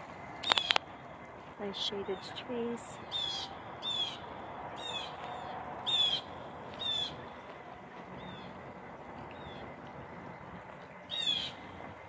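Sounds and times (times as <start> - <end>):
bird calling high short calls: 3.0 - 7.3, 11.0 - 11.7.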